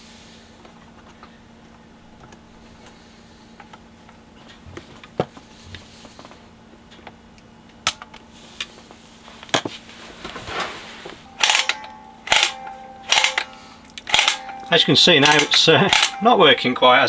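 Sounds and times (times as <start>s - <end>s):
sharp metallic clacks ringing: 11.3s - 17.0s
small metal parts clicking: 11.4s - 16.2s.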